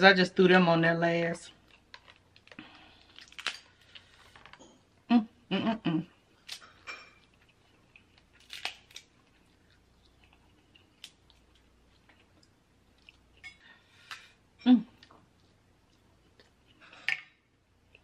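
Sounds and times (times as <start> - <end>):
soft chewing: 1.5 - 5.0, 6.1 - 18.0
crab shells cracking: 1.8 - 3.9, 8.1 - 9.2.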